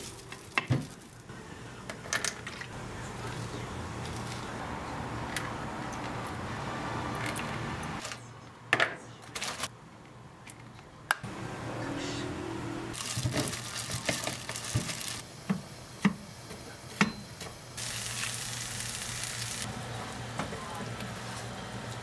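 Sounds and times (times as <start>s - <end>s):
plastic crinkling: 0.0s - 1.3s, 13.0s - 15.2s
meat sizzling in a frying pan: 17.8s - 19.7s.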